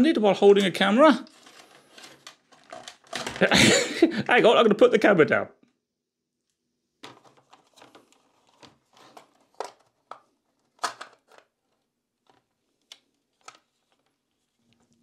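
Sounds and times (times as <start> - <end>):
plastic parts clicking and scraping: 0.6 - 3.6, 7.0 - 15.0.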